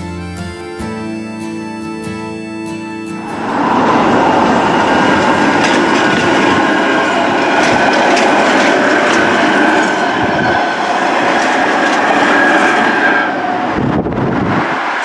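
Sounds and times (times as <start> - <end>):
train high whine: 0.0 - 15.0
train wheels clattering over rail joints: 3.7 - 13.8.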